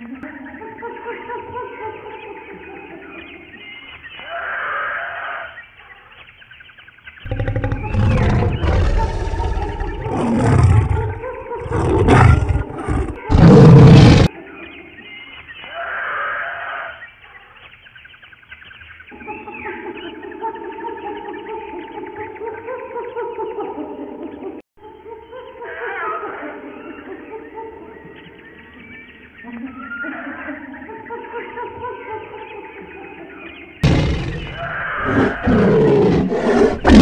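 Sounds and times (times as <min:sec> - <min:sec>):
big cat roaring and growling: 0:07.3 - 0:14.3, 0:33.8 - 0:37.0.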